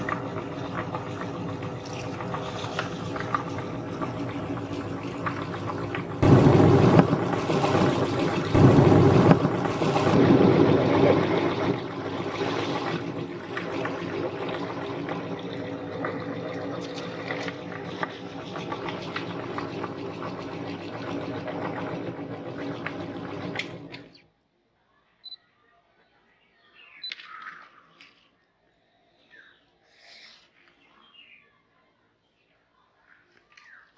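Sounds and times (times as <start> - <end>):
meat grinder grinding cookies: 0.0 - 24.1.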